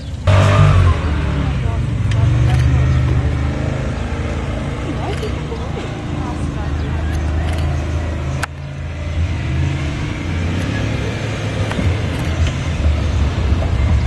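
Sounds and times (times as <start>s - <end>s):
truck engine rumbling: 0.0s - 14.0s.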